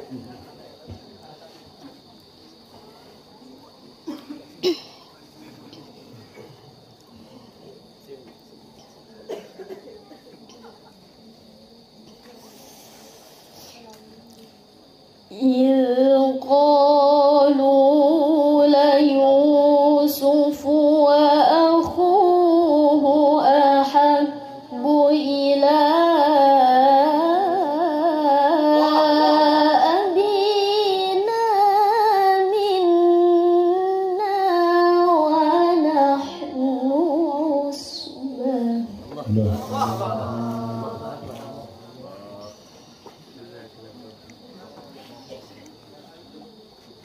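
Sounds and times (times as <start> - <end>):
woman reciting in melodic chant: 15.2 - 41.8.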